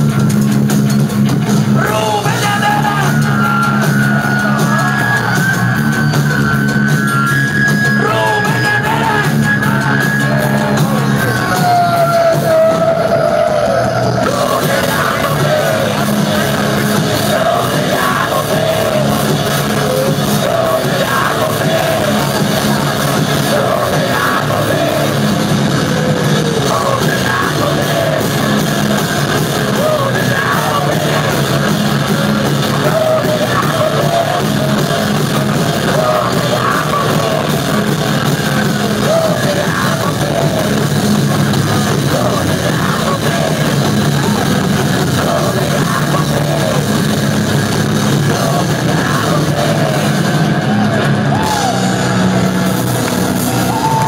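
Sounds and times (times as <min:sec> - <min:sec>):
drums: 0:00.0 - 0:54.0
electric guitars: 0:00.0 - 0:54.0
shouted vocals: 0:01.8 - 0:54.0.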